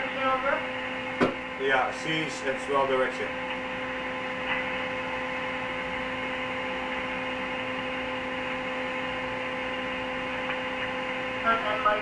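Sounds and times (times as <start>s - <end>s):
radio speaker hum: 0.0s - 12.0s
radio static hiss: 1.6s - 5.5s.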